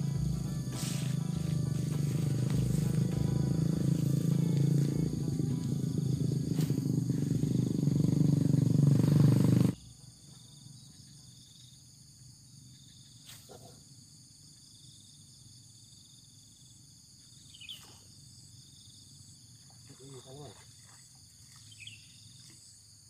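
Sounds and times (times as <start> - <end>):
high-pitched insect buzzing: 0.0 - 9.8
loud low rumbling: 0.0 - 9.8.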